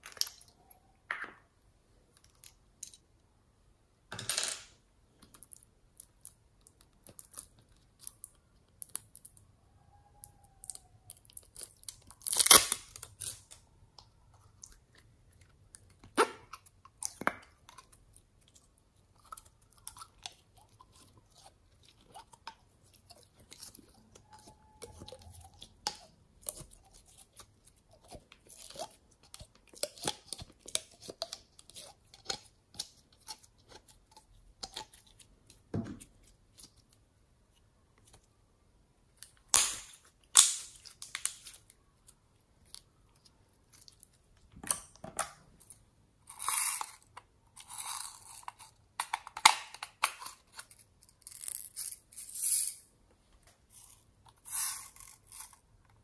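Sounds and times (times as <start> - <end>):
slime crackling and popping: 10.0 - 13.6, 39.5 - 41.7.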